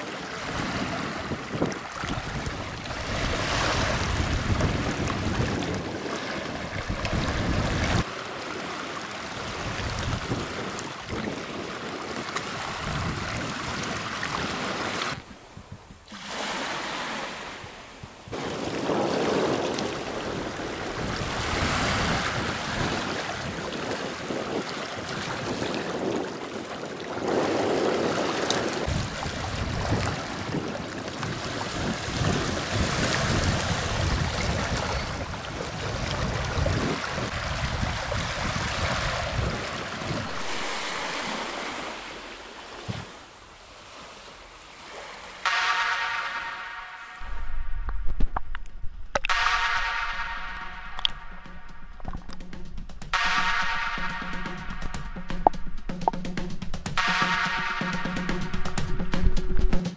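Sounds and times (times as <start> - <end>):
waves washing over stones: 0.0 - 15.3, 16.1 - 46.5
wind rumble on microphone: 0.4 - 8.1, 9.4 - 16.1, 17.6 - 41.8, 47.2 - 53.3.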